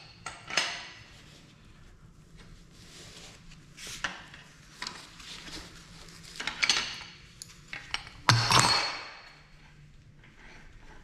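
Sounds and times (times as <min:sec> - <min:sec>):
metal pipe fittings clinking: 0:06.4 - 0:09.5.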